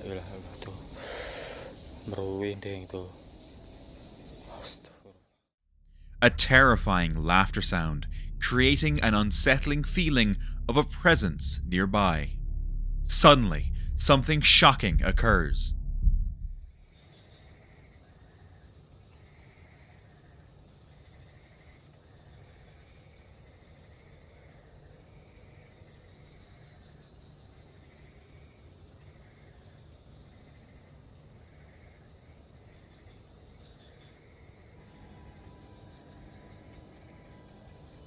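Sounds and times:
crickets chirring: 0.0s - 5.4s, 16.8s - 38.0s
soft repeating insect call: 0.0s - 5.5s, 16.8s - 38.0s.

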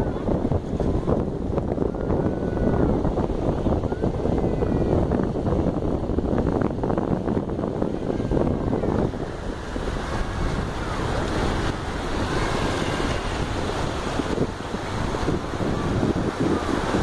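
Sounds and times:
wind buffeting microphone: 0.0s - 17.0s
small waves breaking on sand: 7.8s - 17.0s.

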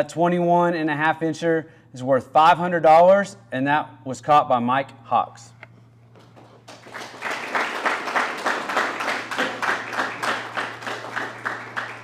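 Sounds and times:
audience applauding: 6.3s - 12.0s.

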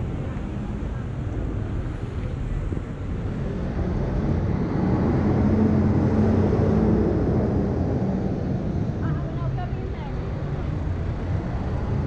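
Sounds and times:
street traffic: 0.0s - 12.0s
vehicle engine passing close: 3.6s - 9.0s.

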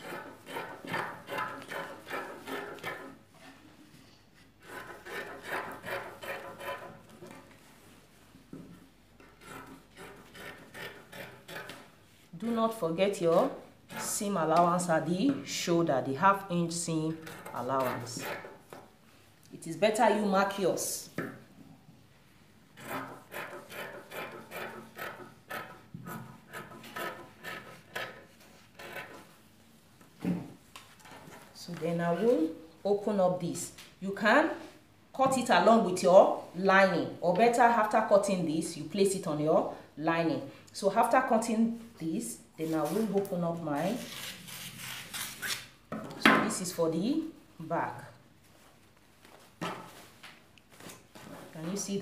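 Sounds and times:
shears snipping fabric: 42.7s - 45.7s.

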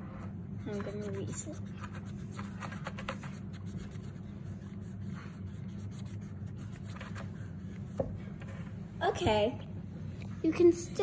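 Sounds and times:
steady low hum: 0.0s - 11.0s
eraser rubbing on paper: 0.7s - 7.9s
pencil scratching on paper: 0.7s - 8.7s.

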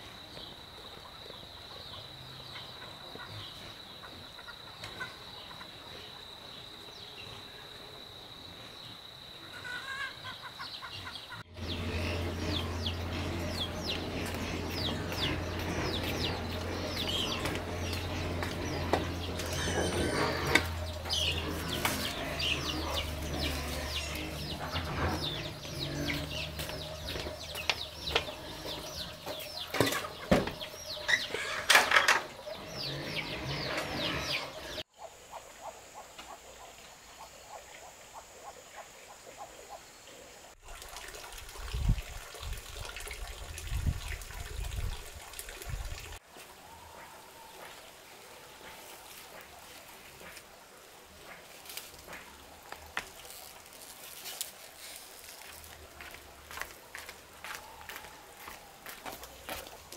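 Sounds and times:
chickens clucking: 0.9s - 5.9s, 9.4s - 39.8s
chicks peeping: 10.2s - 31.6s.

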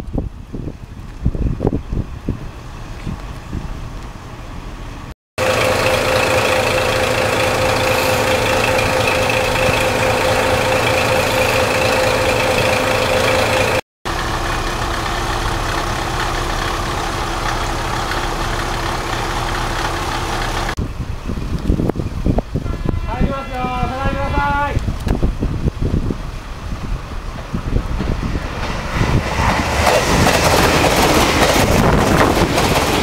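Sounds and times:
diesel railcar engine idling: 3.8s - 21.4s
constant whine: 5.4s - 20.8s.

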